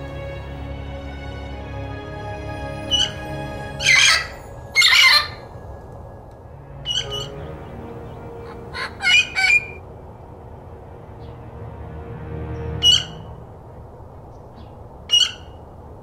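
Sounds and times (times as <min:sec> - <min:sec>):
parrot squawking: 0:02.9 - 0:05.5, 0:06.8 - 0:07.4, 0:08.3 - 0:09.8, 0:12.8 - 0:13.3, 0:15.1 - 0:15.6.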